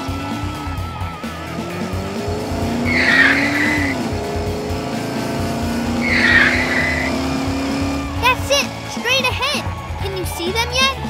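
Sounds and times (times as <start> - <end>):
cartoon car engine: 0.0 - 11.0
tyre screech: 2.4 - 4.2, 5.8 - 8.6.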